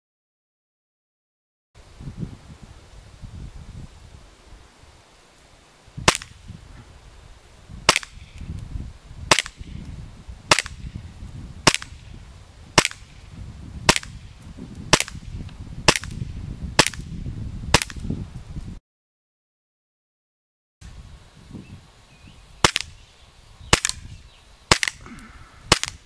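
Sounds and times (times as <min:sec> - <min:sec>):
airsoft pistol shots popping: 0:06.0 - 0:06.4, 0:07.9 - 0:08.5, 0:09.3 - 0:09.8, 0:10.5 - 0:11.0, 0:11.6 - 0:12.1, 0:12.8 - 0:13.2, 0:13.9 - 0:14.3, 0:14.9 - 0:15.3, 0:15.9 - 0:17.1, 0:17.7 - 0:18.1, 0:22.6 - 0:23.0, 0:23.7 - 0:24.1, 0:24.7 - 0:26.0.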